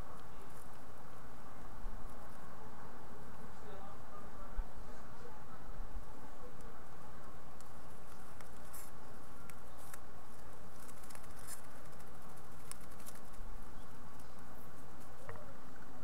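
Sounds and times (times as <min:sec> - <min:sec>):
faint ticks and rustles in nest: 0:00.0 - 0:02.6, 0:06.0 - 0:16.0.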